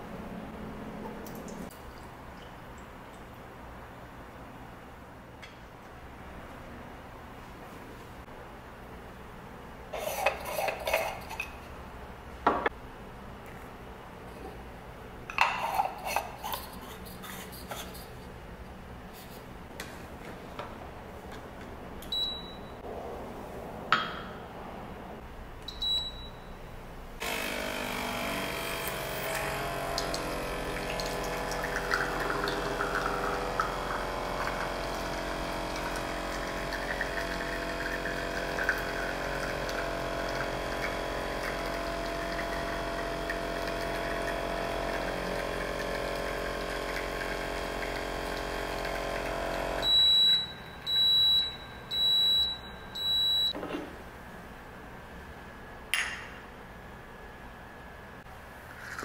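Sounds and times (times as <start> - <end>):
espresso maker beeps: 22.1 - 22.8, 25.7 - 26.5, 49.6 - 53.6
pump humming: 27.2 - 53.5.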